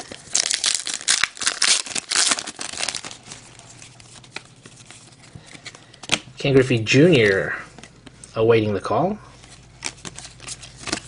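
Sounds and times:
wrapper tearing and crinkling: 0.0 - 5.2.

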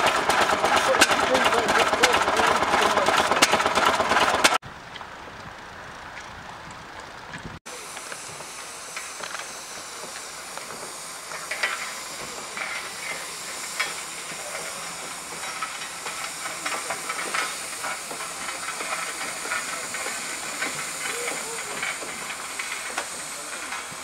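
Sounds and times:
steam engine hissing: 0.0 - 4.6, 7.6 - 24.0.

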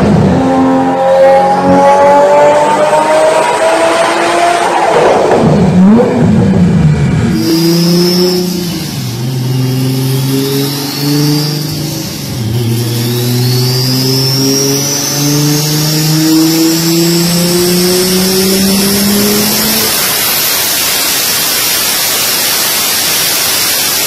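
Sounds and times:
loud engine rev: 0.0 - 21.3
car engine running hard: 0.0 - 24.0
turbo whistle: 7.3 - 24.0.

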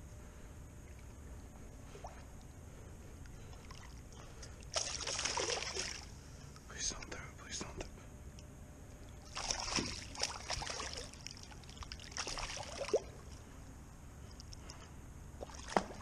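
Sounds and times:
water splashing against kayak: 9.3 - 13.1.

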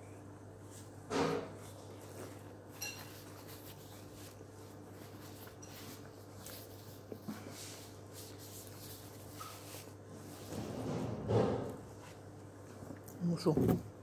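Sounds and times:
paper napkin rustling: 1.6 - 10.7.

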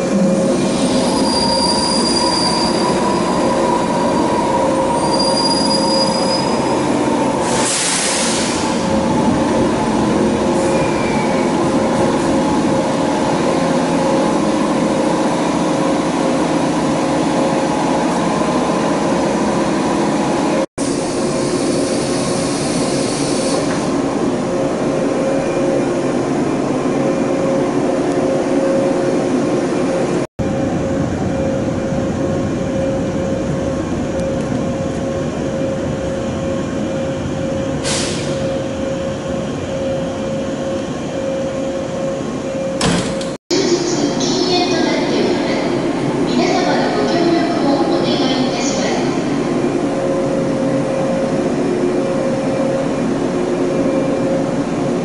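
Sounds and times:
train wheels and brakes squealing: 0.5 - 8.9, 10.6 - 11.6, 37.7 - 38.8
train equipment humming: 2.3 - 55.0.

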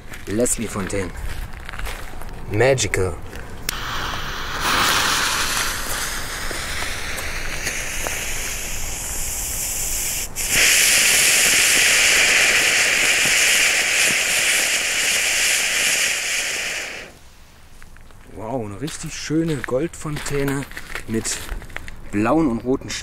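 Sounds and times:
fountain firework hissing: 3.7 - 17.2.

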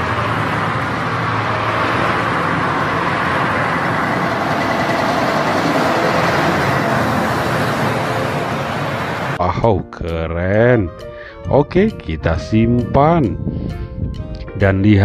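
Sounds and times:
passing traffic: 0.0 - 9.4, 10.8 - 15.0
truck engine and tyre noise: 0.0 - 9.4.

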